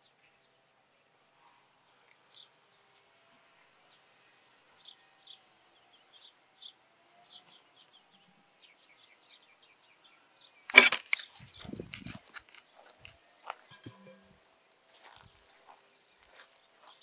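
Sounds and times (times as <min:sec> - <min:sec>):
loud crack of nest hitting boat: 0:10.7 - 0:11.3
faint high chirping: 0:13.6 - 0:14.4
rattling and scraping: 0:13.7 - 0:14.4.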